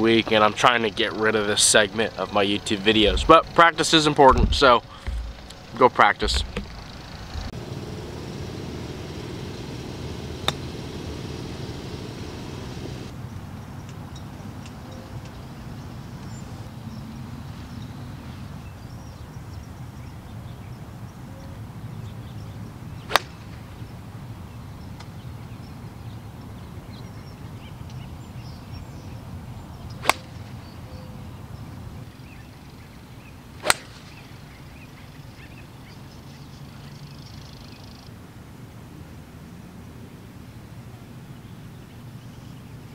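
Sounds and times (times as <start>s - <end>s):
low background rumble: 0.3s - 13.1s
golf club striking balls: 4.3s - 7.6s, 8.6s - 13.1s, 23.1s - 23.7s, 29.9s - 30.6s, 33.6s - 34.2s.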